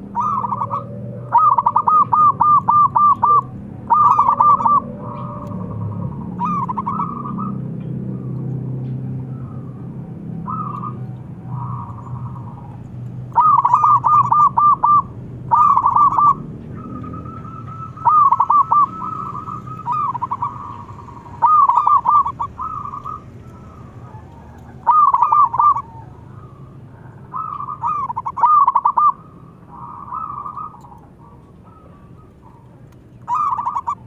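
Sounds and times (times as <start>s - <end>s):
doves cooing: 0.0s - 34.0s.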